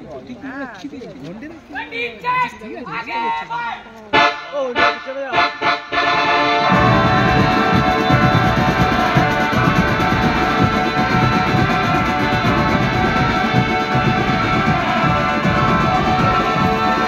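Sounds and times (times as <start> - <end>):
held horn notes: 4.1 - 17.0
marching band playing: 4.1 - 17.0
fast continuous drumming: 6.6 - 17.0.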